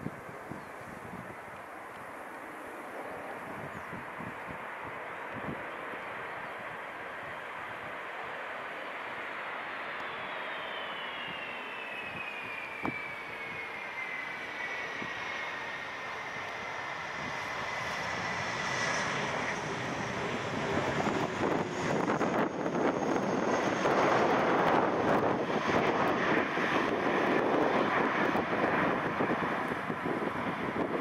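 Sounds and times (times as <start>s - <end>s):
airliner engine rush rolling past: 0.0s - 31.0s
jet engine whine: 0.0s - 31.0s.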